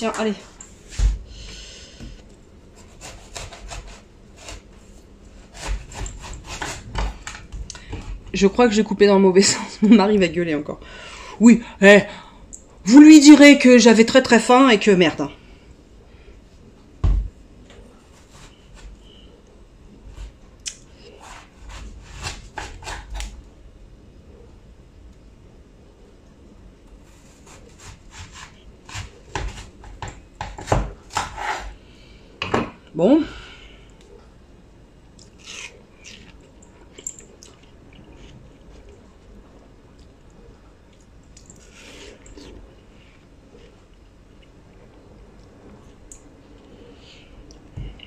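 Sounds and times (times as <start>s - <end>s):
knife sawing through watermelon: 2.8s - 4.6s
knife cutting watermelon crunches: 35.2s - 36.4s.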